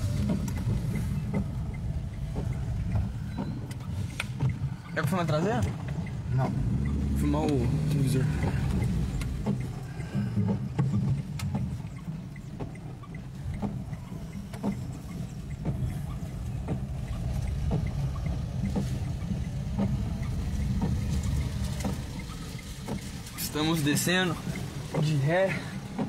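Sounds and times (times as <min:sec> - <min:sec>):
car engine running: 0:00.0 - 0:26.0
rain on car: 0:00.0 - 0:26.0.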